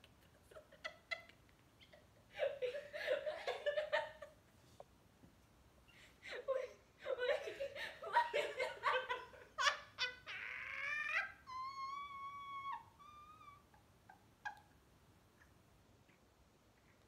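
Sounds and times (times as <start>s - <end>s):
woman laughing: 0.2s - 4.4s, 6.3s - 11.8s.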